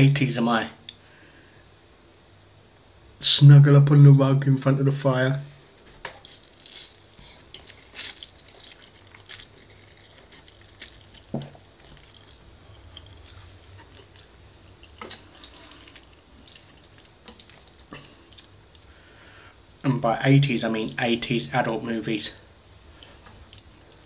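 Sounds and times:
chewing food: 6.1 - 19.0, 23.0 - 24.0
soft mouth clicks and smacks: 6.2 - 18.9.

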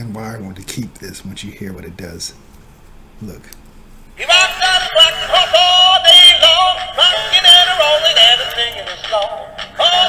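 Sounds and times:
toy synthetic singing voice: 4.2 - 10.0
toy music: 4.3 - 10.0.

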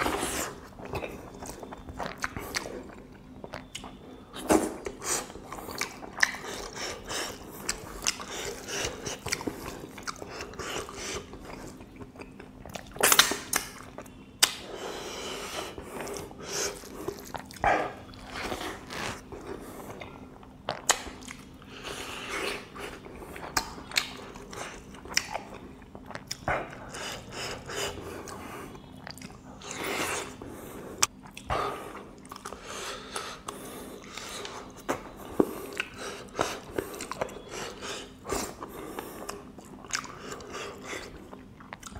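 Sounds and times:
close chewing: 4.8 - 14.1, 33.4 - 41.9.

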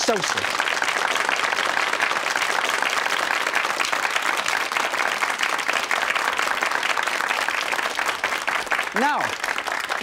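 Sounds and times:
audience applauding: 0.0 - 10.0.

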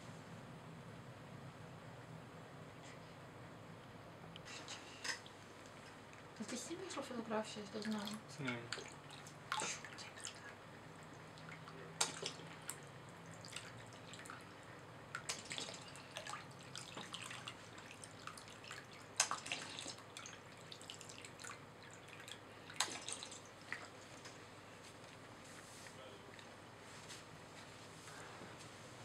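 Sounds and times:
water dripping and splashing: 7.8 - 14.5, 15.1 - 24.3.

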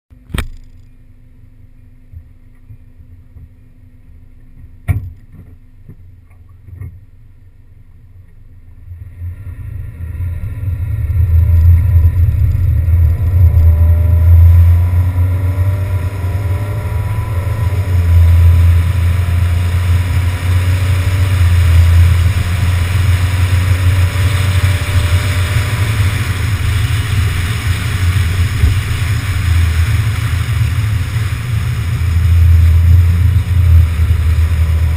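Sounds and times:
road noise rumble: 0.1 - 34.9
small knocks: 4.5 - 7.0
wind buffeting: 9.1 - 34.9.

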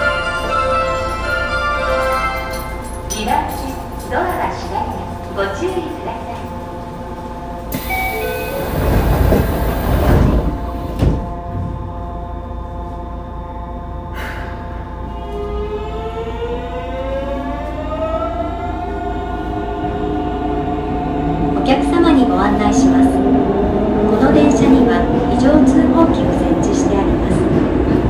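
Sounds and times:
train inverter whine rising: 6.6 - 26.0.

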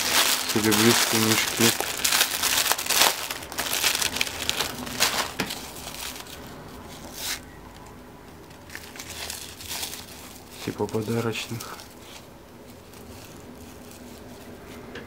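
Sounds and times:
plastic packaging crinkling: 0.0 - 14.8.

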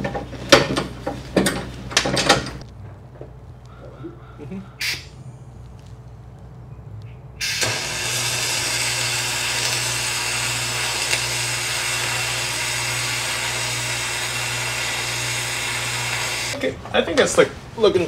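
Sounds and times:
low hum: 2.6 - 8.5.

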